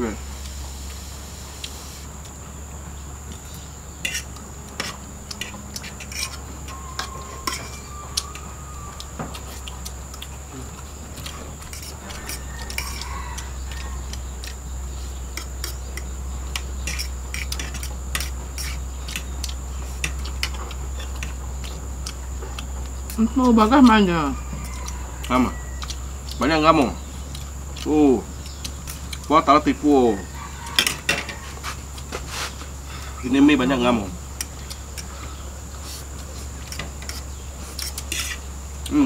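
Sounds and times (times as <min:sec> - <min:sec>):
cutlery clinking against plates: 0:04.0 - 0:08.4, 0:15.4 - 0:19.3, 0:30.6 - 0:31.4.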